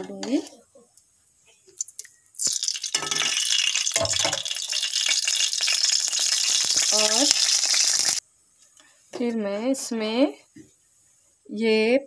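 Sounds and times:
oil sizzling in a metal pan: 0:02.4 - 0:08.2.

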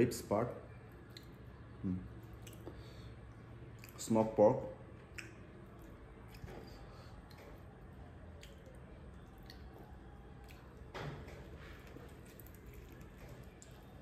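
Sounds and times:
wet squishing of ribs pulled apart: 0:05.0 - 0:14.0.

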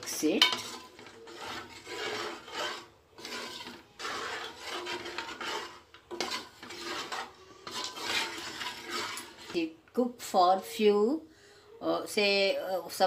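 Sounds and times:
metal spoon stirring in pot: 0:00.0 - 0:09.8.

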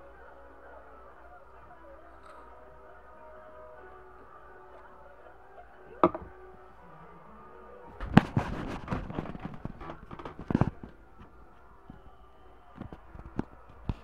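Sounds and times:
glass suction pop: 0:06.0 - 0:06.3.

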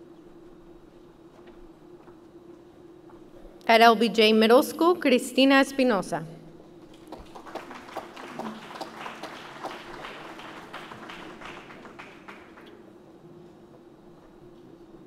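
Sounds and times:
audience applause: 0:06.9 - 0:12.8.

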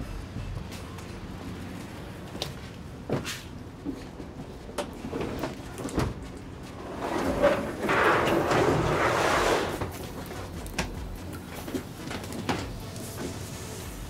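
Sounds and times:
rubber mat scraping on metal floor: 0:06.8 - 0:10.0.

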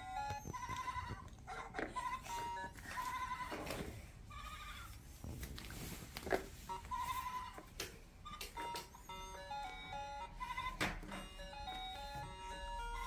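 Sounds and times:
toy electronic tones: 0:08.2 - 0:13.0.

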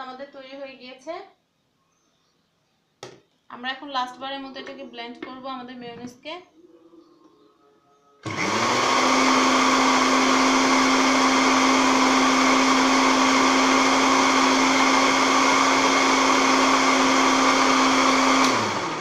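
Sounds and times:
blender motor running: 0:08.2 - 0:19.0.

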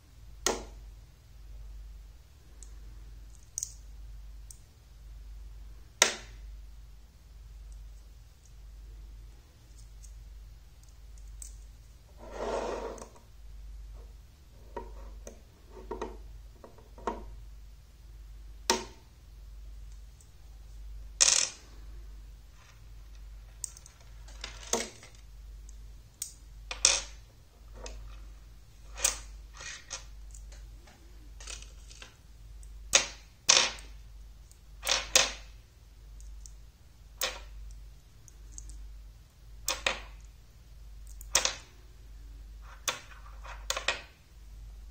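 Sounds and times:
magnets clicking together: 0:03.3 - 0:03.8, 0:10.8 - 0:11.7, 0:36.2 - 0:36.6, 0:37.2 - 0:38.8, 0:41.0 - 0:41.7
magnetic pieces rattling: 0:22.5 - 0:35.5.

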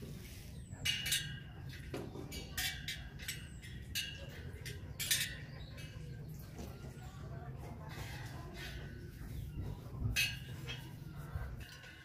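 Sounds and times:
spoke wrench clinking on spokes: 0:00.8 - 0:06.2, 0:10.0 - 0:11.0.

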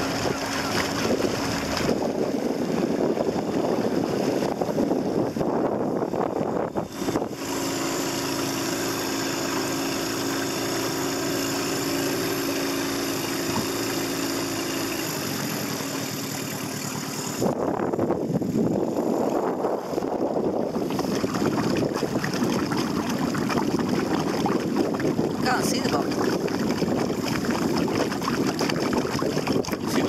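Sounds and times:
wind on microphone: 0:00.0 - 0:09.8, 0:17.2 - 0:30.0
outboard motor idling: 0:00.0 - 0:30.0.

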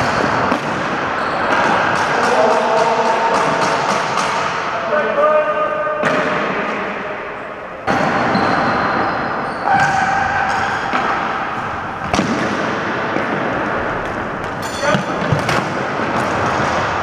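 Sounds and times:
echoing din of play: 0:00.0 - 0:17.0
sticks and ball knocking floor: 0:09.7 - 0:17.0.

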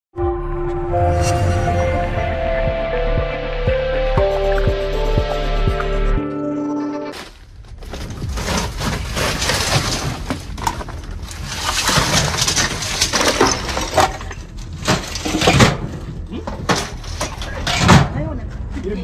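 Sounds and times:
metal and boards clattering: 0:07.8 - 0:18.7.

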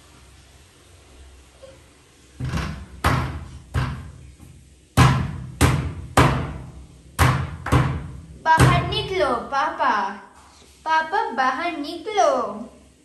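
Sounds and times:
hands banging on wooden door: 0:02.4 - 0:04.2, 0:05.0 - 0:09.1.

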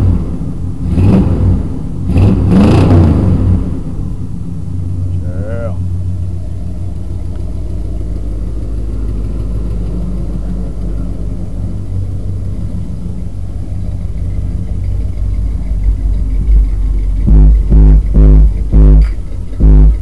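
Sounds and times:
engine idling rumble: 0:00.0 - 0:20.0
low thumps: 0:08.6 - 0:20.0.

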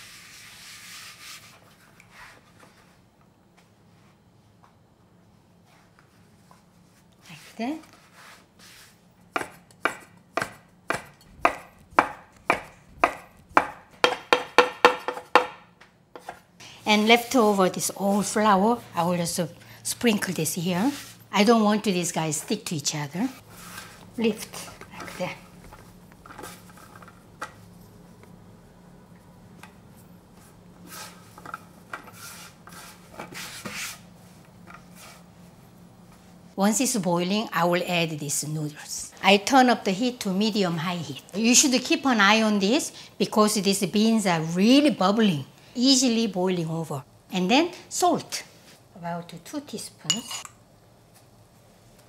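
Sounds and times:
knife chopping on wooden board: 0:09.3 - 0:15.6
hands rubbing noodle dough: 0:30.0 - 0:36.3.

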